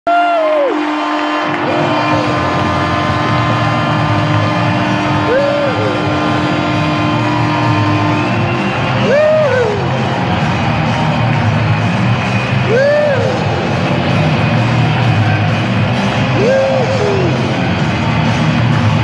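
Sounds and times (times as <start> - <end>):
celebration music: 0.1 - 19.0
crowd cheering and whooping: 0.1 - 19.0
arena goal horn: 0.4 - 10.2.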